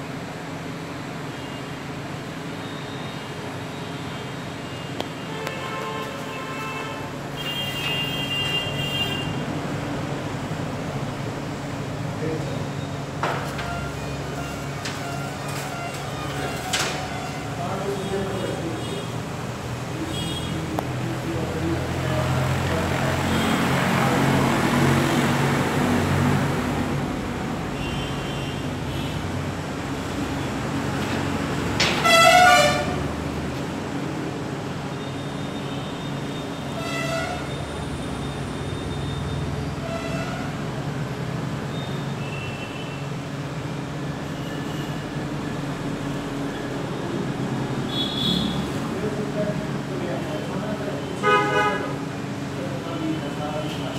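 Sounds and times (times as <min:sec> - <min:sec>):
mechanical hum: 0:00.0 - 0:53.9
road traffic noise: 0:00.0 - 0:53.9.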